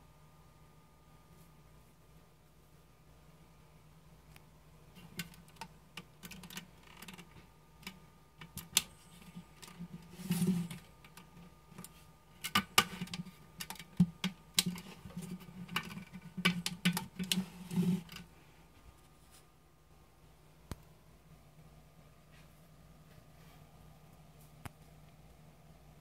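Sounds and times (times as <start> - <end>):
clicks and taps: 11.0 - 17.4.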